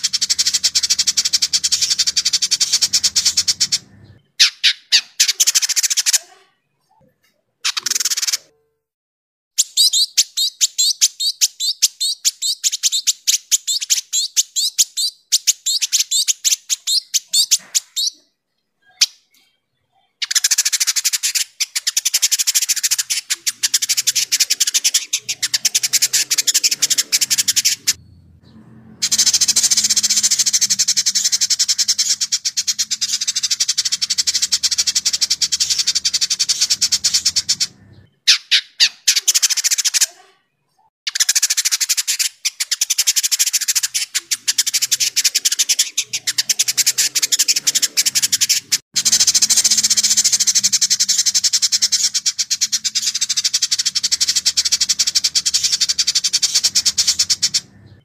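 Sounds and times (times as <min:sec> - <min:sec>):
bird chattering song: 0:00.0 - 0:08.7, 0:09.6 - 0:58.0.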